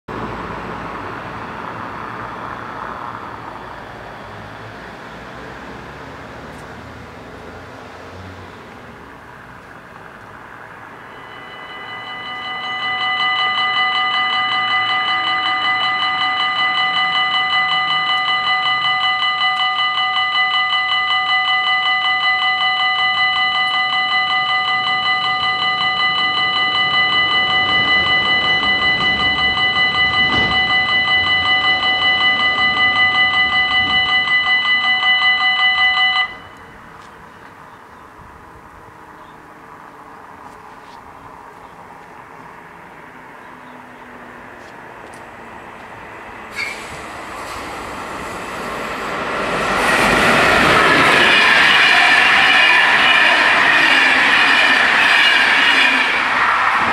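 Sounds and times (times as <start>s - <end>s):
low road traffic: 0.1s - 56.9s
level crossing warning bells: 10.0s - 38.0s, 42.7s - 56.9s.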